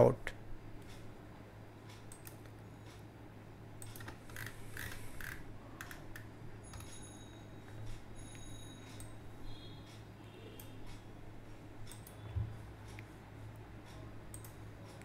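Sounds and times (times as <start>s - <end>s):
low steady hum: 0.0s - 15.0s
computer mouse clicks: 1.9s - 3.0s, 3.8s - 6.9s, 11.8s - 12.2s, 13.9s - 15.0s.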